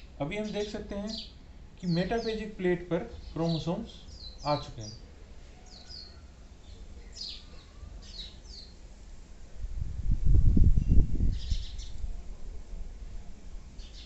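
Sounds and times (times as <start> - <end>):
small birds chirping: 0.0 - 8.9, 10.8 - 12.1, 13.8 - 14.0.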